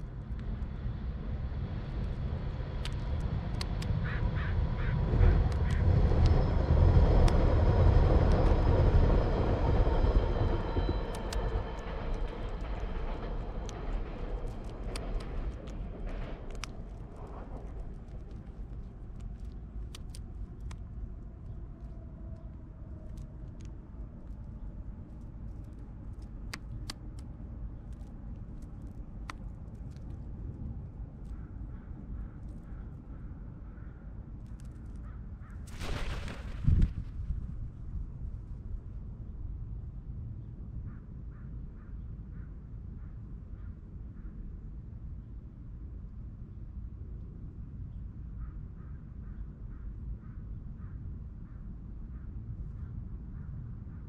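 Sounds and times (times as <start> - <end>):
traffic rumble: 0.0 - 39.9
crow calling: 4.0 - 5.0.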